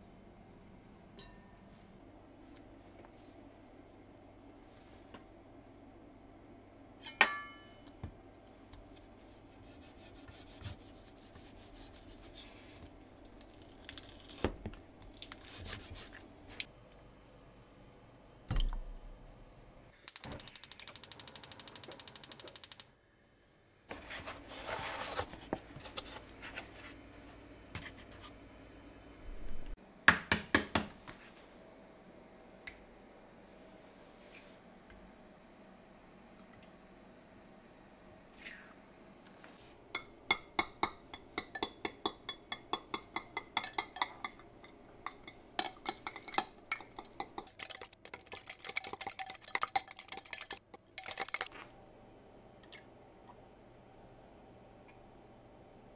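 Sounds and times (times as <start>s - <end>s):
eggs being cracked: 41.4s - 51.6s.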